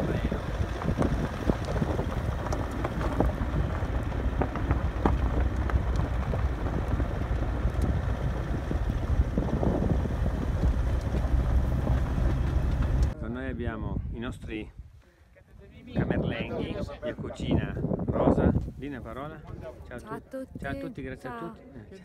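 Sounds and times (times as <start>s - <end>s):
car road rumble: 0.0s - 13.2s
wind buffeting microphone: 0.0s - 15.0s, 15.6s - 21.1s.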